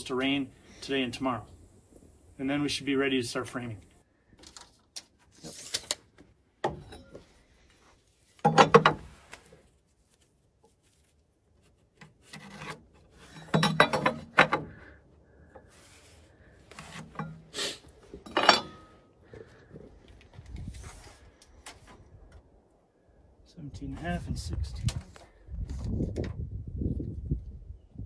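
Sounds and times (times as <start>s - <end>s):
lumber scraping against wood: 5.2s - 6.0s, 10.6s - 18.9s.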